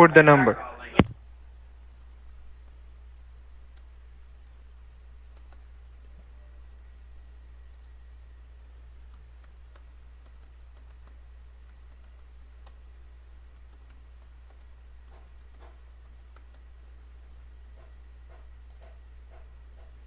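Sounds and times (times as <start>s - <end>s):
steady low hum: 0.0s - 20.0s
computer keyboard typing: 3.6s - 4.6s, 5.2s - 5.8s, 7.7s - 8.0s, 8.9s - 16.8s, 17.8s - 20.0s.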